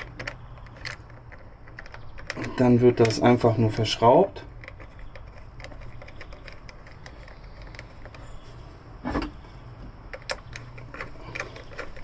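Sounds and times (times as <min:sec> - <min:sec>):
small metal clicks and taps: 0:00.0 - 0:03.2.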